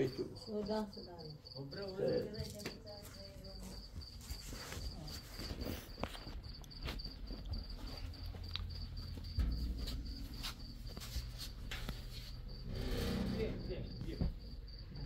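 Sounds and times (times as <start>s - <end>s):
cricket chirping: 0.0s - 15.0s
low bump: 9.0s - 14.5s.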